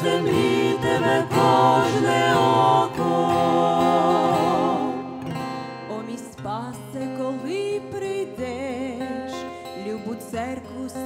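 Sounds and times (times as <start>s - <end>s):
man and woman singing: 0.0s - 5.3s
acoustic guitar strumming: 0.0s - 11.0s.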